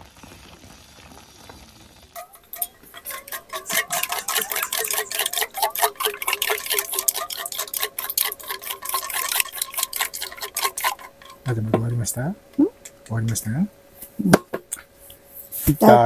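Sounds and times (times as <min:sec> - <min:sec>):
chopsticks whisking in metal cup: 0:02.2 - 0:12.2, 0:12.8 - 0:13.4.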